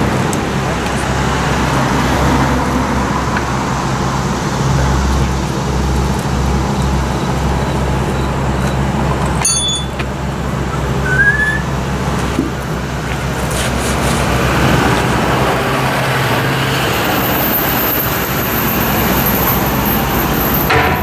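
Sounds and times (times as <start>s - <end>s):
road traffic: 0.0s - 21.0s
vehicle engine running: 0.0s - 21.0s
high ringing clink: 9.4s - 10.0s
brief rising chirp: 10.7s - 11.7s.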